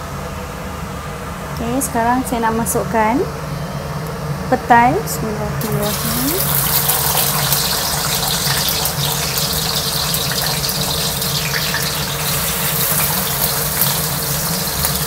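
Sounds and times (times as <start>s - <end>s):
beans sizzling in hot oil: 5.6s - 15.0s.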